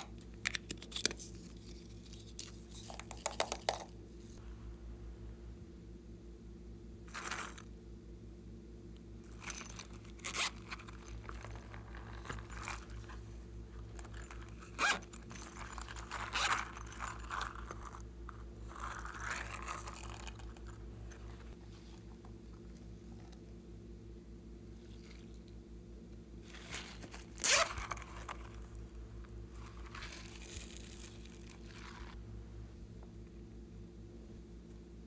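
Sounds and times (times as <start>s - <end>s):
scratchy rubbing of soft toys: 7.1s - 7.7s, 14.0s - 18.0s, 18.6s - 20.6s, 26.4s - 28.7s, 29.5s - 32.2s.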